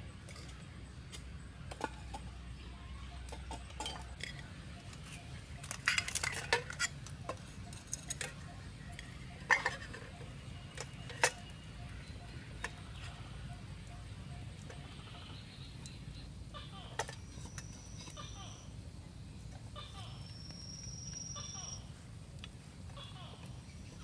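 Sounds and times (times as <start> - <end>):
metal cookware clinking and clattering: 0.2 - 2.3, 3.3 - 11.5.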